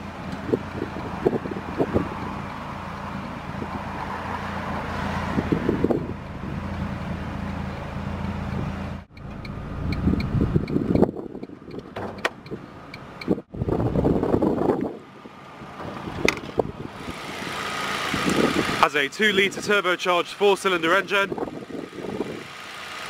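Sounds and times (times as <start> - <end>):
car engine running: 0.0 - 14.6, 15.5 - 23.0
uneven engine running: 0.0 - 23.0
wind noise on microphone: 0.2 - 7.3, 9.8 - 18.8, 21.3 - 22.6.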